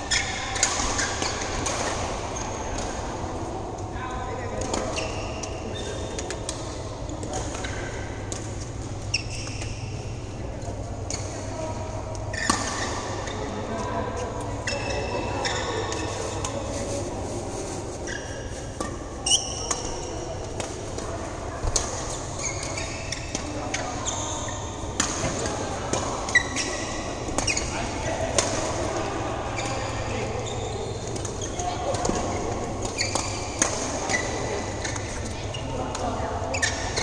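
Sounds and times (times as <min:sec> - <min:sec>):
sneakers squeaking on court: 0:08.7 - 0:10.0, 0:18.0 - 0:20.3, 0:21.7 - 0:25.6, 0:26.2 - 0:27.8, 0:29.5 - 0:35.8.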